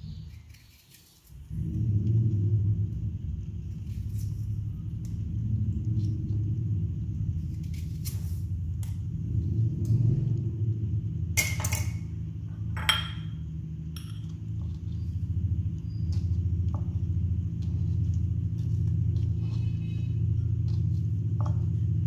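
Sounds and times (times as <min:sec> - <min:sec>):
low rumble: 0:01.4 - 0:22.0
glass dish clinking: 0:12.8 - 0:13.4.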